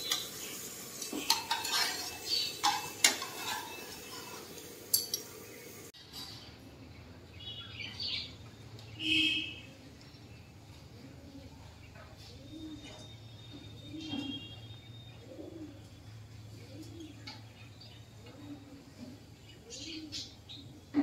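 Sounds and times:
cutlery clinking against a dish: 0:00.0 - 0:05.4
bird chirps: 0:12.2 - 0:15.6.

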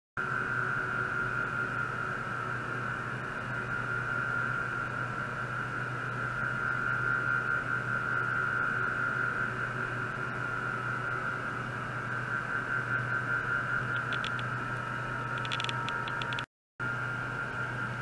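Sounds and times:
low hum: 0:11.8 - 0:16.5
ultrasonic probe whining: 0:12.0 - 0:16.5.

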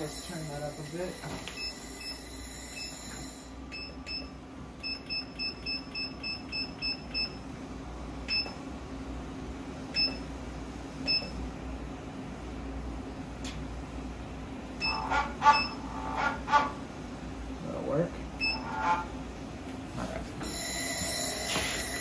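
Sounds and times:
keypad beeps: 0:03.7 - 0:07.4, 0:08.3 - 0:08.6, 0:10.0 - 0:10.3, 0:11.1 - 0:11.4, 0:14.8 - 0:15.9, 0:18.4 - 0:18.7.

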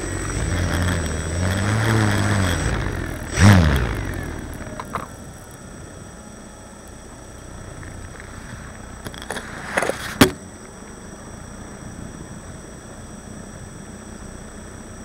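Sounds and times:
sharp thump: 0:10.0 - 0:10.4.

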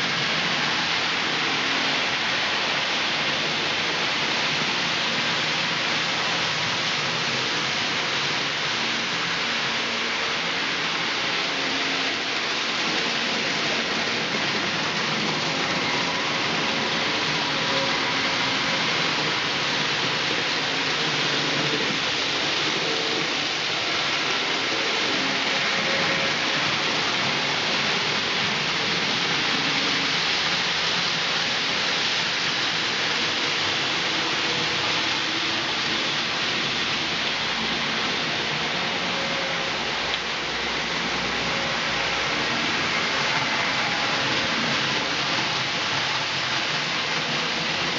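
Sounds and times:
small train wheels rattling on track: 0:00.0 - 0:47.9.

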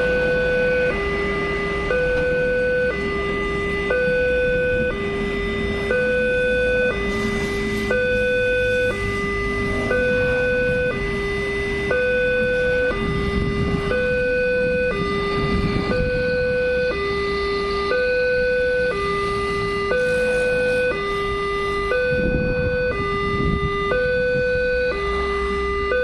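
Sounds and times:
level crossing two-tone alarm: 0:00.0 - 0:26.0.

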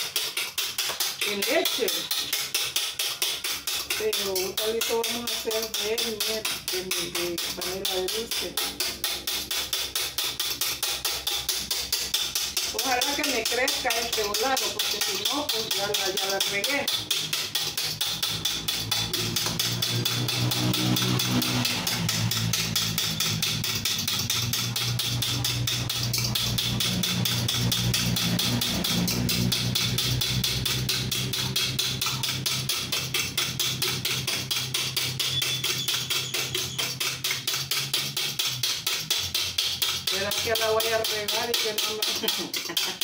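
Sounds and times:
fork beating eggs in bowl: 0:00.0 - 0:43.0.

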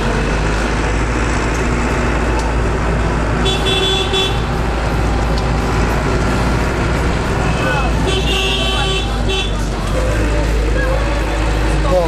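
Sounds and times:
vehicle engine rumble: 0:00.0 - 0:12.0
vehicle horn: 0:03.4 - 0:04.6, 0:07.4 - 0:10.2.

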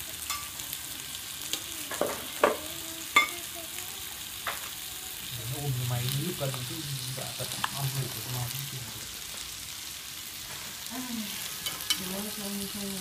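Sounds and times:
fish sizzling in frying pan: 0:00.0 - 0:13.0.

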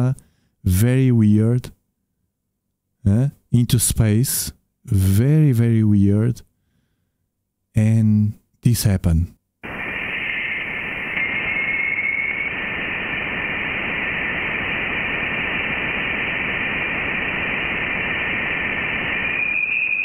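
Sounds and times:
steady radio-like hiss: 0:09.6 - 0:20.0
faint whistling tone: 0:09.7 - 0:14.0, 0:18.4 - 0:20.0.

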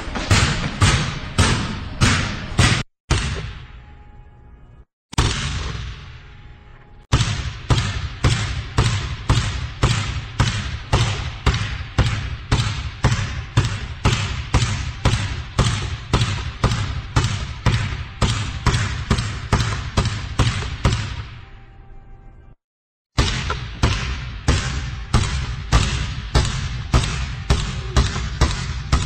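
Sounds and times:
basketball bouncing: 0:00.0 - 0:03.7, 0:07.1 - 0:21.4, 0:23.2 - 0:29.0.

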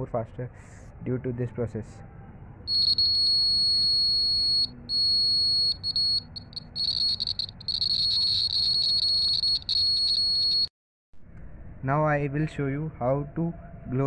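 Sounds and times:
high-pitched electronic buzzer tone: 0:02.7 - 0:10.7.

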